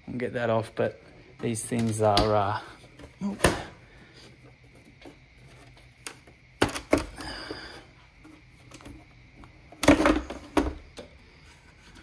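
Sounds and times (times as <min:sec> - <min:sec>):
plastic cover knocking and popping: 0:06.0 - 0:07.2, 0:08.6 - 0:11.1.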